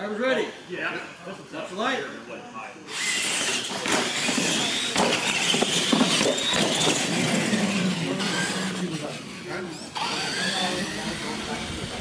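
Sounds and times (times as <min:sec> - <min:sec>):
toy truck motors whining: 0:02.9 - 0:12.0.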